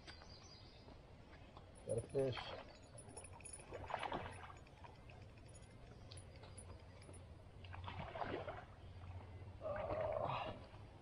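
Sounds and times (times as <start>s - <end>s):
lake waves lapping on rocks: 2.2s - 5.4s, 7.6s - 10.7s.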